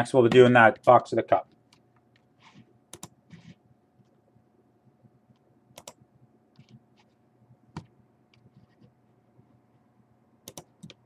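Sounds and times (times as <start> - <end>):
computer keys clicking: 2.9 - 3.2, 5.7 - 6.0, 10.4 - 11.0.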